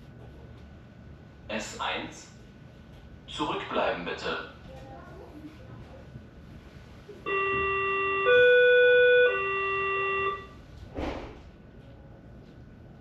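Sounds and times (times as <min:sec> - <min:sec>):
train door warning tones: 0:07.2 - 0:10.7
train doors closing: 0:07.2 - 0:11.6.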